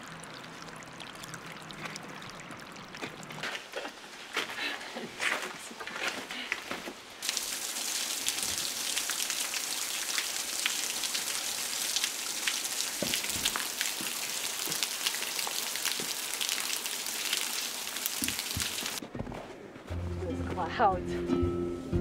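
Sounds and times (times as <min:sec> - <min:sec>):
small drip ticks: 0:00.0 - 0:03.4
water drops pattering and splashing: 0:00.0 - 0:03.9, 0:07.2 - 0:19.0.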